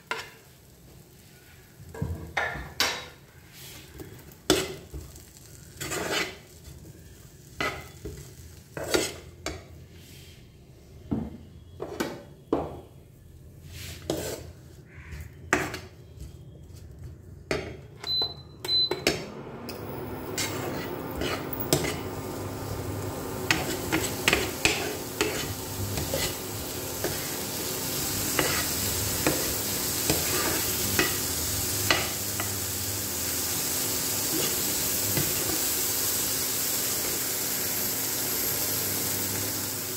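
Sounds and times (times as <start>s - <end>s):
food sizzling: 0.0s - 10.0s, 19.0s - 39.9s
cooktop hum: 0.0s - 39.9s
spatula scraping frying pan: 3.6s - 10.1s, 13.7s - 16.2s, 20.2s - 22.6s, 23.2s - 32.7s
cooktop double beep: 18.0s - 19.2s.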